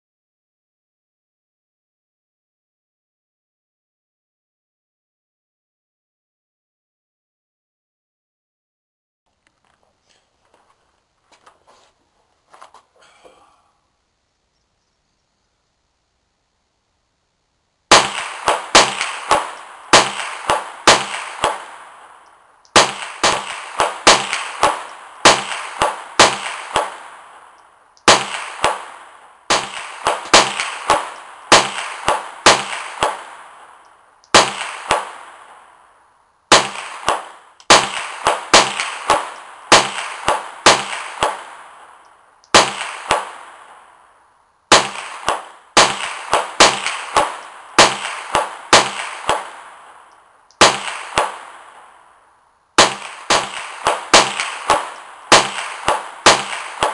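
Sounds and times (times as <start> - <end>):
rifle shots echoing: 17.9 - 35.9, 36.5 - 44.1, 44.7 - 52.2, 52.8 - 56.9.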